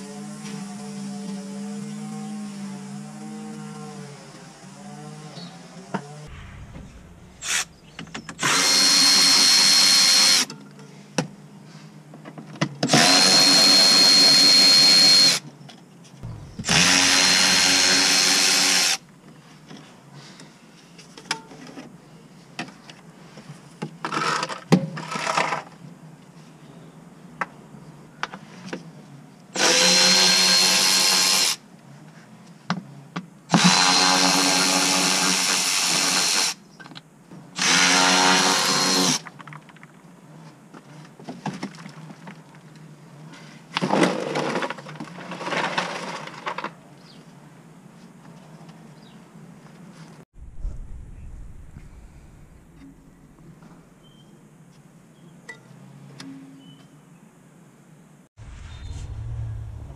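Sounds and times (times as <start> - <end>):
power drill running: 8.4 - 10.5, 12.9 - 15.4, 16.4 - 19.0, 29.6 - 31.6, 37.6 - 39.2.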